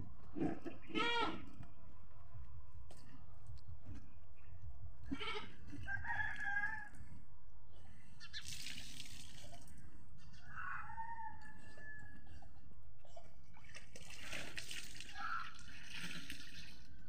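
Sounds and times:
farm animals calling: 0:00.4 - 0:01.6.

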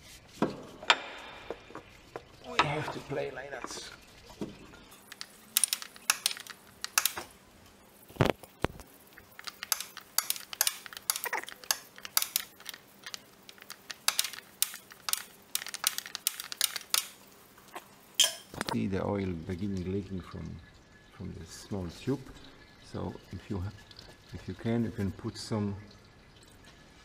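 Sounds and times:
spanner clicking and knocking on metal: 0:05.0 - 0:07.3, 0:09.3 - 0:17.1.

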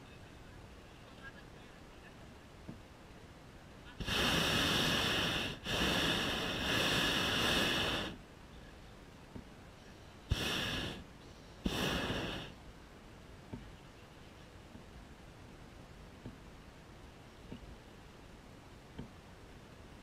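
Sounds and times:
propane burner blasts: 0:03.9 - 0:08.2, 0:10.2 - 0:12.6.

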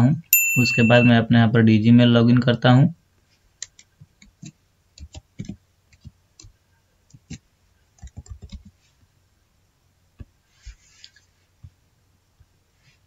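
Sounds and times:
computer keyboard typing: 0:03.6 - 0:06.5, 0:08.0 - 0:08.7.

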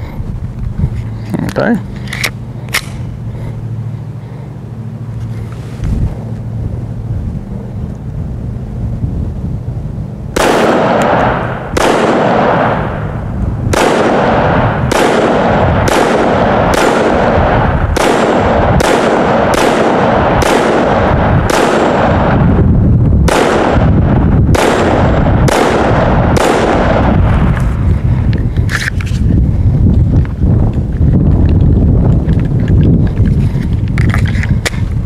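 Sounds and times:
wind rumble on microphone: 0:00.0 - 0:35.0
pistol shots echoing: 0:10.4 - 0:22.5, 0:23.2 - 0:27.4.

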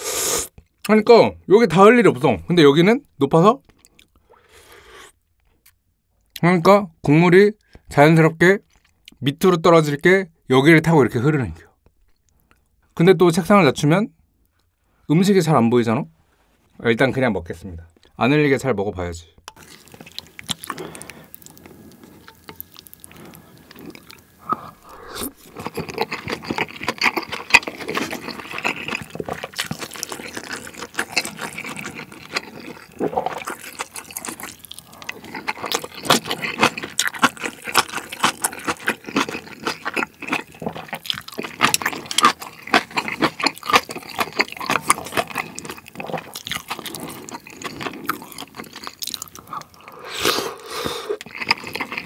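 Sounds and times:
slurping and chewing: 0:19.5 - 0:52.0
spoon stirring in soup: 0:21.2 - 0:34.6.

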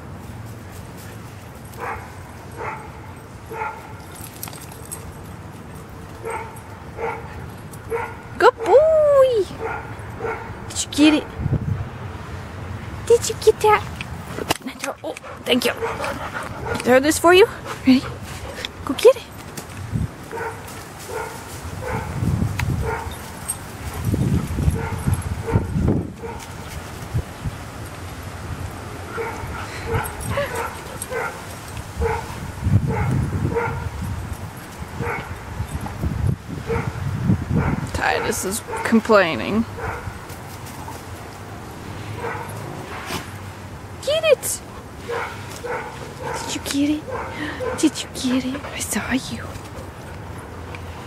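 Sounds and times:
dog barking: 0:01.8 - 0:03.9, 0:06.2 - 0:07.3, 0:07.9 - 0:08.3, 0:09.6 - 0:10.6, 0:20.3 - 0:22.2, 0:22.8 - 0:23.1, 0:24.8 - 0:26.4, 0:29.1 - 0:31.4, 0:32.0 - 0:32.3, 0:32.9 - 0:33.9, 0:35.0 - 0:35.4, 0:36.7 - 0:37.0, 0:37.6 - 0:39.0, 0:39.8 - 0:40.1, 0:42.2 - 0:42.6, 0:45.1 - 0:47.9.

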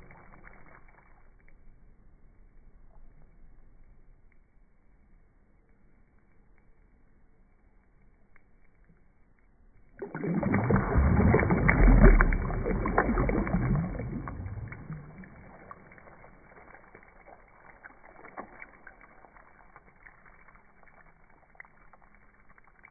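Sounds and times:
water splashing and churning: 0:10.0 - 0:20.5
water bubbling: 0:10.0 - 0:22.9.

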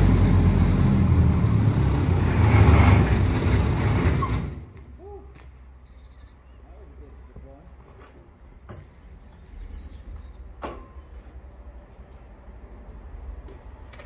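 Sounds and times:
wood chipper running: 0:00.0 - 0:04.8.

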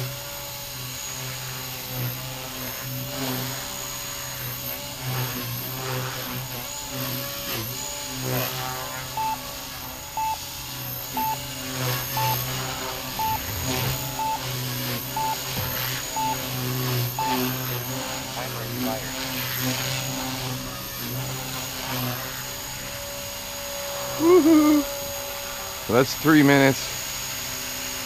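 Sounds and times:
rc helicopter rotor whine: 0:00.0 - 0:28.0
short electronic beeps: 0:09.2 - 0:09.5, 0:10.2 - 0:10.4, 0:11.2 - 0:12.5, 0:13.1 - 0:17.6.

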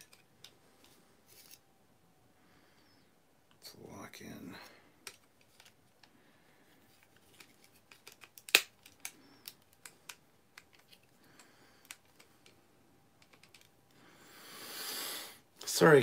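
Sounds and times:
plastic toy parts clicking: 0:00.0 - 0:00.6, 0:07.2 - 0:11.1, 0:13.2 - 0:13.7
loud plastic snap: 0:08.0 - 0:10.2.

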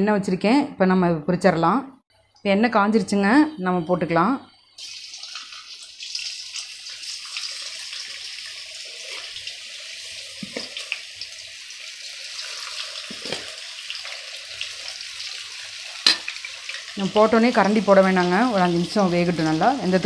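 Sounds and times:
food deep-frying in hot oil: 0:04.8 - 0:20.0.

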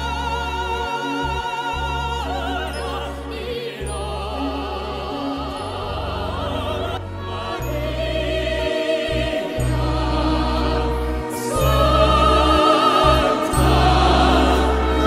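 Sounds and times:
low instrumental accompaniment: 0:00.0 - 0:15.0.

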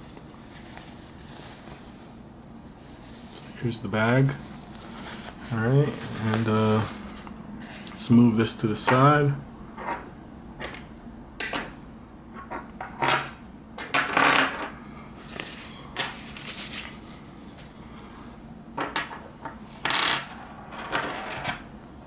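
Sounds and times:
short scrapes and rustles: 0:00.0 - 0:08.0, 0:15.2 - 0:17.8.

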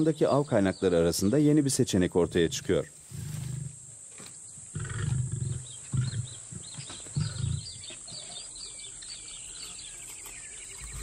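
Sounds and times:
birds chirping: 0:00.0 - 0:11.0
lion grunting: 0:04.7 - 0:08.5.

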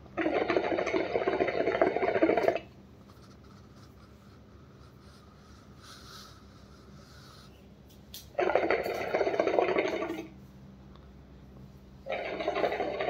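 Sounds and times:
hookah water bubbling: 0:00.0 - 0:05.0, 0:08.2 - 0:10.4, 0:12.0 - 0:13.0.

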